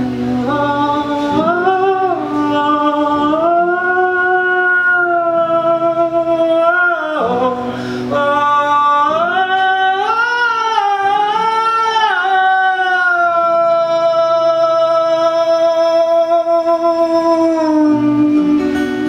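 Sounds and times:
acoustic guitars: 0:00.0 - 0:19.0
man singing a long vowel: 0:00.0 - 0:19.0.

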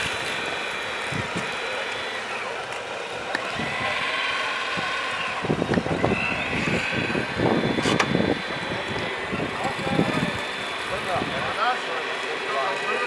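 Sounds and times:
outdoor background noise: 0:00.0 - 0:13.0
small electric motors whining: 0:00.0 - 0:13.0.

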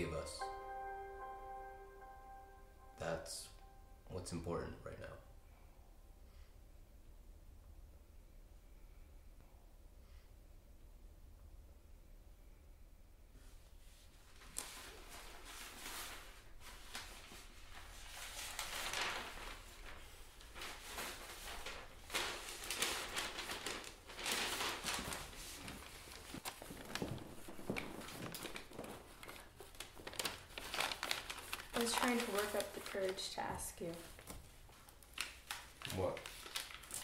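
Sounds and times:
clothes and packing rustling: 0:13.4 - 0:37.0.

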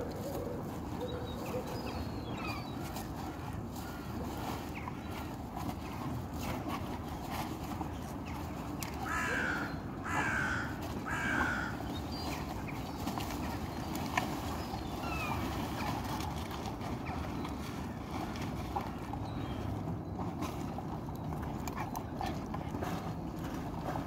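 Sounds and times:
crow cawing: 0:09.0 - 0:11.8.

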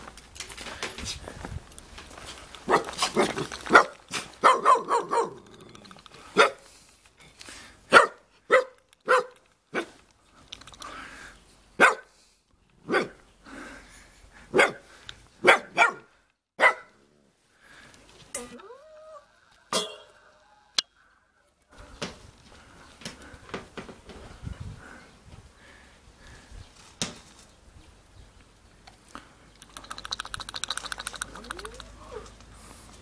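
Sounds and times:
dog barking: 0:02.7 - 0:05.4, 0:06.4 - 0:06.6, 0:07.9 - 0:10.0, 0:11.8 - 0:12.1, 0:12.9 - 0:13.2, 0:14.5 - 0:14.8, 0:15.4 - 0:17.0.

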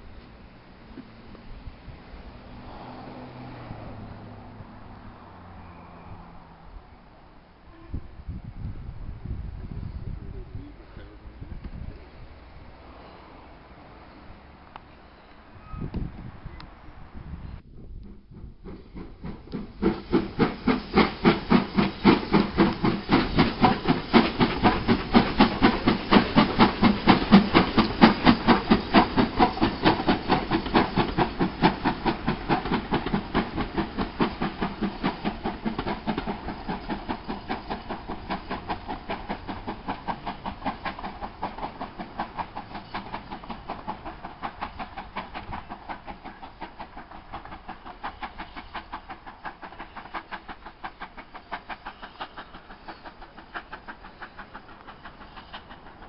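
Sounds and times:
steam locomotive exhaust chuffing: 0:17.6 - 0:56.0.

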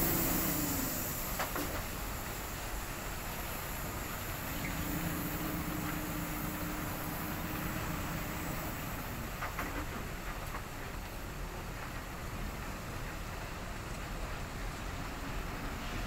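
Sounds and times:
diesel truck engine: 0:00.0 - 0:10.8
low rumbling background hum: 0:00.0 - 0:11.9.

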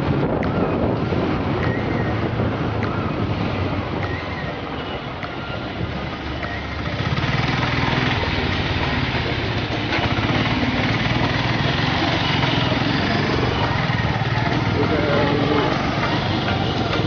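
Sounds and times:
road and wind noise: 0:00.0 - 0:17.0
motorcycle engine running: 0:06.6 - 0:17.0.

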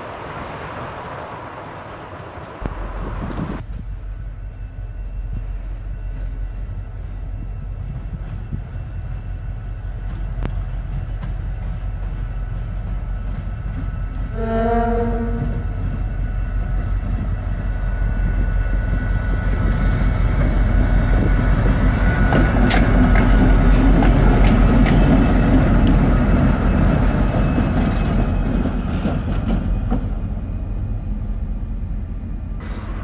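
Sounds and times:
diesel locomotive engine rumble: 0:00.0 - 0:33.0
train wheel clicks: 0:21.3 - 0:26.1.

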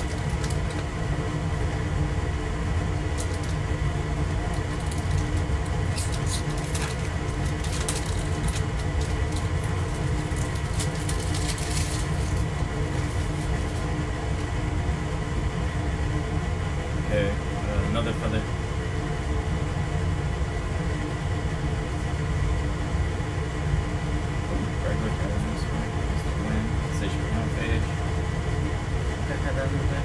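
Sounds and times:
crinkles and clicks: 0:00.0 - 0:00.9, 0:03.1 - 0:03.6, 0:04.4 - 0:14.5
water heater rumbling hum: 0:00.0 - 0:30.0.

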